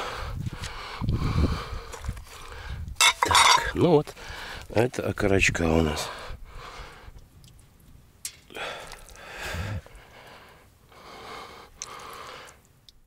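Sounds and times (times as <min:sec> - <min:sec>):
person breathing noisily: 0:00.0 - 0:02.9, 0:08.5 - 0:12.6.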